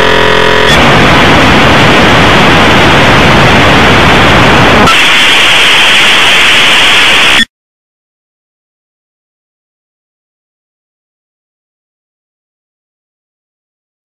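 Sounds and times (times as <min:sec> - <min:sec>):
tv static hiss: 0:00.7 - 0:07.5.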